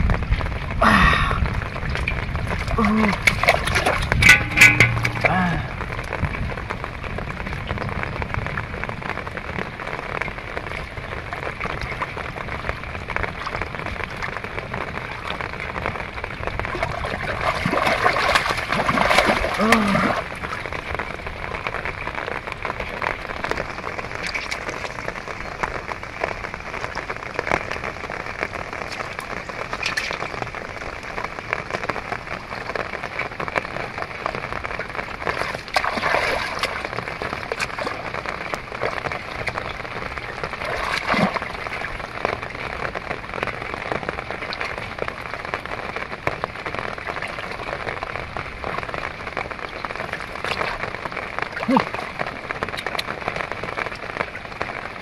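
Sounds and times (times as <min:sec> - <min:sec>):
muddy water splashing: 0:00.0 - 0:30.8, 0:33.9 - 0:45.8, 0:46.7 - 0:55.0
loud splashes: 0:02.5 - 0:06.0, 0:16.7 - 0:20.7, 0:35.3 - 0:39.5, 0:40.5 - 0:42.0, 0:51.5 - 0:52.4.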